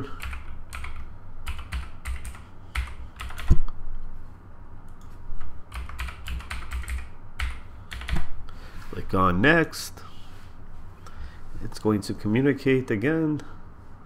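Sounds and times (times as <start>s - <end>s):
computer keyboard typing: 0.0s - 3.6s, 5.7s - 8.3s.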